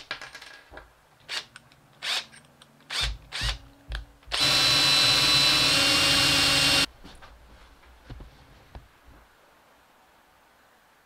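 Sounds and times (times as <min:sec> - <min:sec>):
power drill boring wood: 0:04.3 - 0:06.9.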